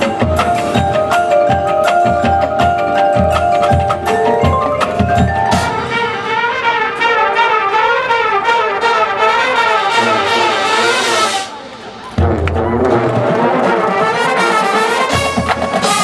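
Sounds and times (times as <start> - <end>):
mallet percussion: 0.0 - 7.2
brass horn melody: 5.4 - 16.0.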